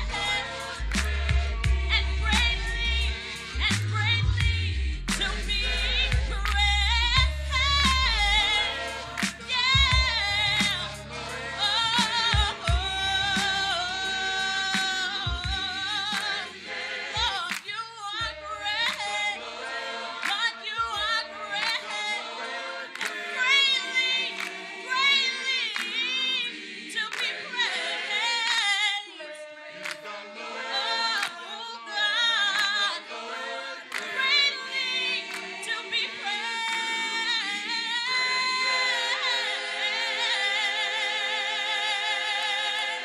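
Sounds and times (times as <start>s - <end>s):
gospel choir singing: 0.0s - 43.0s
woman soloist singing: 22.9s - 30.0s, 33.9s - 42.9s.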